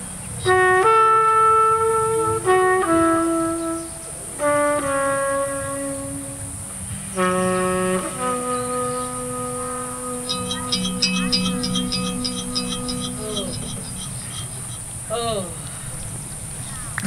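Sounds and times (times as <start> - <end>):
live jazz band: 0.4 - 10.4.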